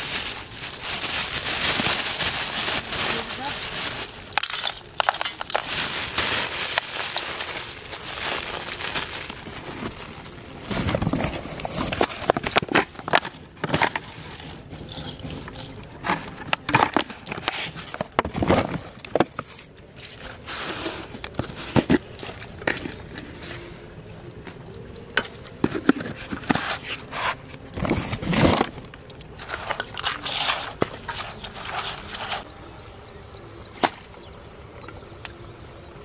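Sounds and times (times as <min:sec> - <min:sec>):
hands crumbling bait in steel bowl: 0:03.8 - 0:10.4.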